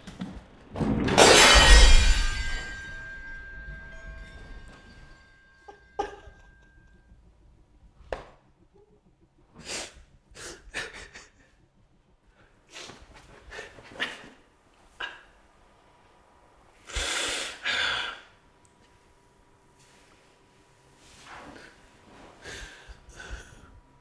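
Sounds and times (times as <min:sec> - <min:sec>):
loud crash: 0:00.7 - 0:05.4
faint high ringing tone: 0:01.4 - 0:08.0.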